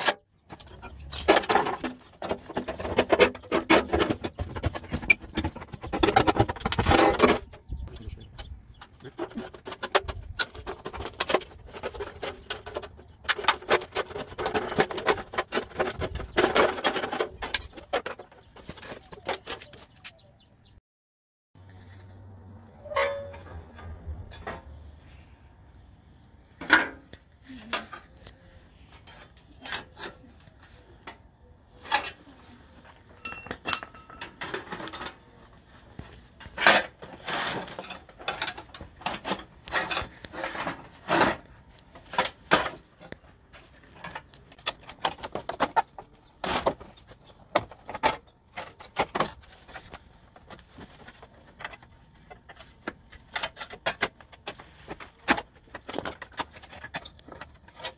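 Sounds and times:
metal parts clinking and clanking: 22.8s - 24.6s, 32.9s - 35.3s.

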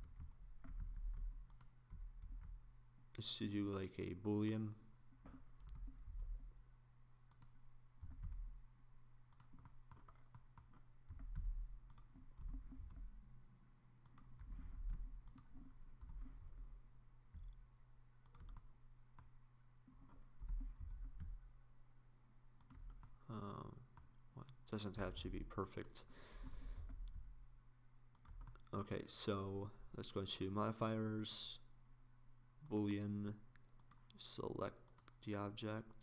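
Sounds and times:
steady low hum: 0.0s - 35.2s
mouse clicks: 7.3s - 7.6s, 9.3s - 13.0s, 14.0s - 16.3s, 18.2s - 19.3s, 33.6s - 34.2s
soft low thumps: 20.4s - 21.5s.

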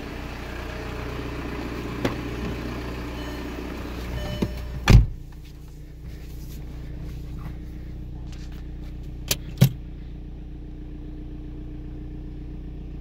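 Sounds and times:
diesel engine idling: 0.0s - 13.0s
thump: 4.4s - 5.2s.

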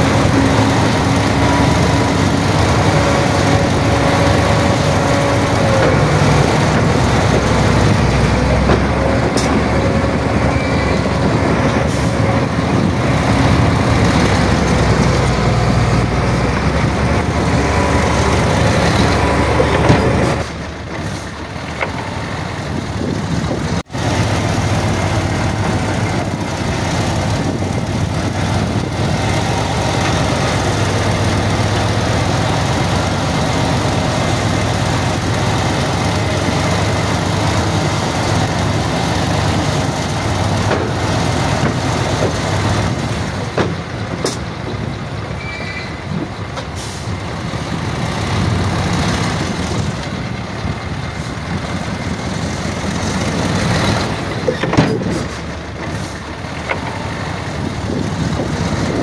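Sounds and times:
diesel machinery running: 0.0s - 59.0s.

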